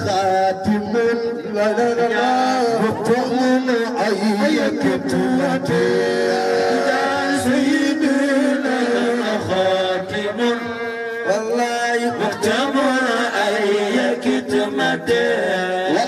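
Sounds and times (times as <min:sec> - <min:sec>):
men chanting through pa: 0:00.0 - 0:16.0.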